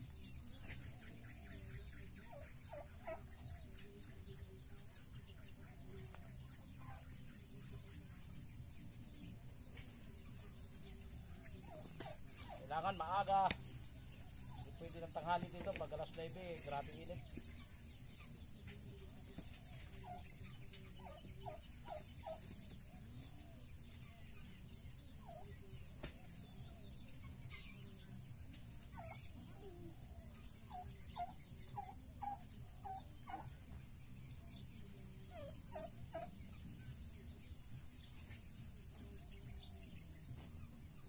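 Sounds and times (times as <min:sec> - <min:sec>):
turkeys calling: 0:00.6 - 0:04.2, 0:10.3 - 0:24.4, 0:28.8 - 0:33.9, 0:35.2 - 0:36.6.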